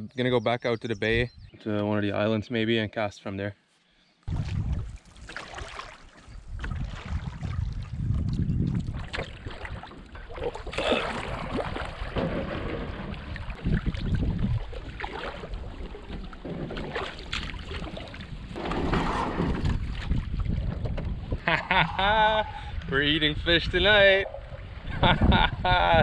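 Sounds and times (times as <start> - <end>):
wind buffeting microphone: 4.3 - 5.6, 6.2 - 10.8, 11.4 - 26.0
water lapping around canoe: 4.3 - 21.5.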